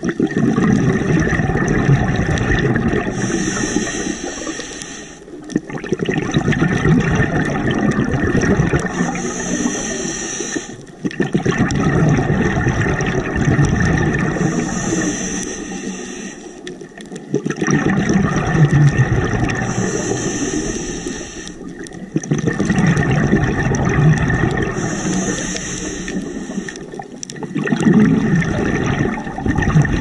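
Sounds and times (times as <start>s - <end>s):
exhaled bubbles rushing underwater: 0.0s - 30.0s
regulator hiss: 3.1s - 5.4s, 8.8s - 10.8s, 14.4s - 16.6s, 19.6s - 21.7s, 24.8s - 26.9s.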